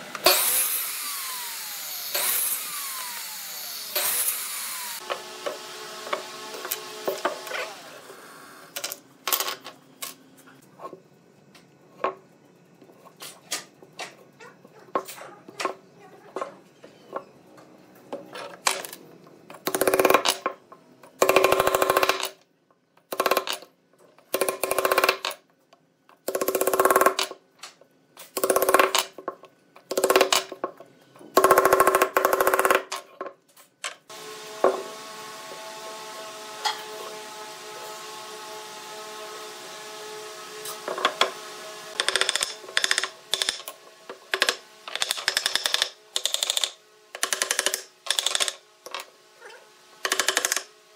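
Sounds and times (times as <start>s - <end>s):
wooden parts knocking: 42.0s - 43.7s.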